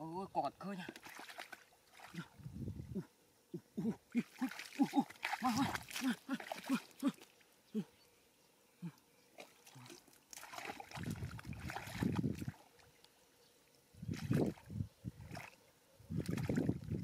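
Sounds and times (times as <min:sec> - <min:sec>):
hands sloshing through mud: 0:00.9 - 0:02.3, 0:04.2 - 0:07.3, 0:09.4 - 0:12.7, 0:14.1 - 0:14.6, 0:15.2 - 0:15.6, 0:16.2 - 0:17.0.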